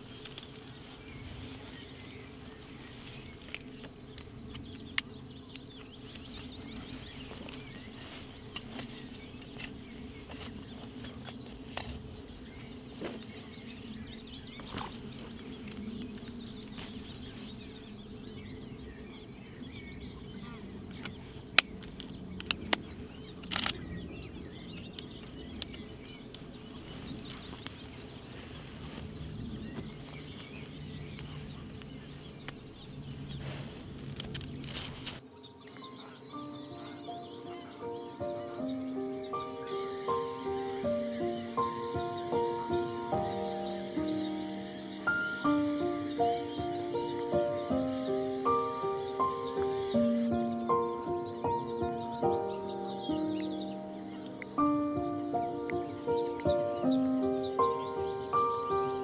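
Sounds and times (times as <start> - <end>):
leafy cover rustling: 0.0 - 18.5, 25.1 - 59.0
birds chirping faintly: 0.0 - 59.0.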